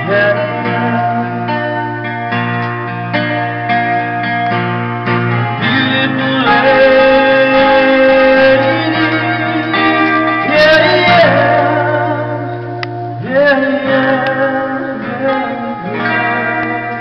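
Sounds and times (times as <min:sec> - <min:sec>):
man singing long held notes: 0:00.0 - 0:01.7, 0:05.6 - 0:17.0
acoustic guitar strumming: 0:00.0 - 0:17.0.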